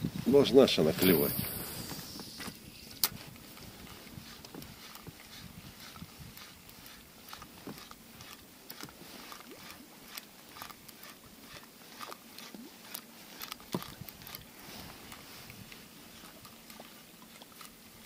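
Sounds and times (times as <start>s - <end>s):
fishing tackle clicks and ticks: 6.6s - 17.8s.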